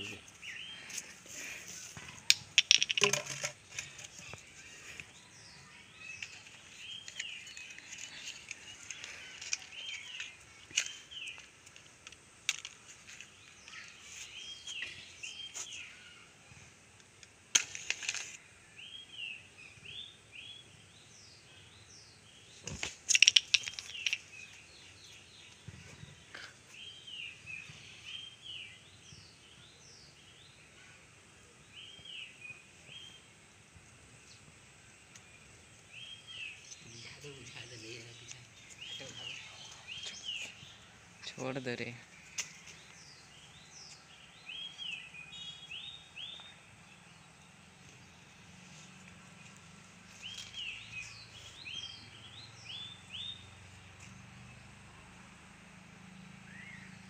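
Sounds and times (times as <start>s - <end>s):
bird chirping: 0.0s - 16.3s, 17.7s - 33.4s, 34.2s - 54.8s, 56.0s - 57.0s
sharp clicks and knocks: 2.1s - 3.6s, 22.7s - 24.2s.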